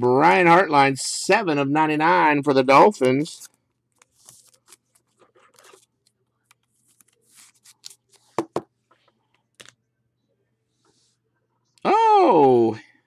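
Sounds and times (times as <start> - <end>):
cards rustling and sliding: 3.4 - 9.7.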